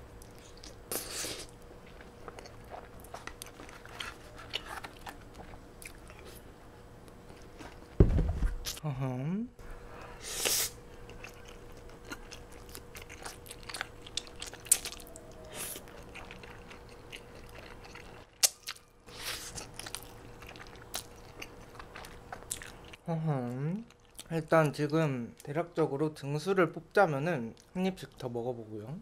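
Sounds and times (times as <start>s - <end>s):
slurping and chewing noodles: 0.2s - 6.4s, 10.2s - 23.0s.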